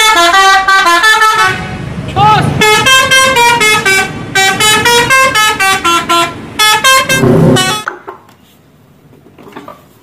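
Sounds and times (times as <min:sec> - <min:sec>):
multi-tone musical bus horn: 0:00.0 - 0:01.9, 0:02.5 - 0:07.9.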